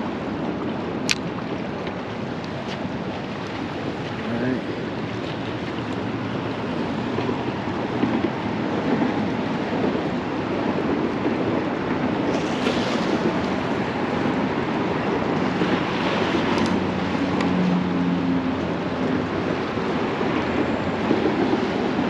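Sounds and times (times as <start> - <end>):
water washing below pier: 0.0 - 22.0
wind rushing over microphone: 0.0 - 22.0.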